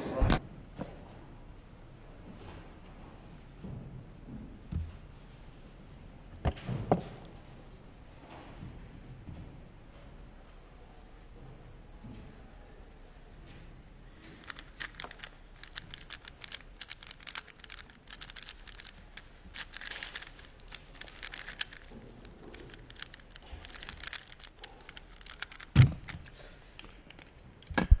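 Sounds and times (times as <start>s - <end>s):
speed cube clicking and rattling: 14.4s - 28.0s.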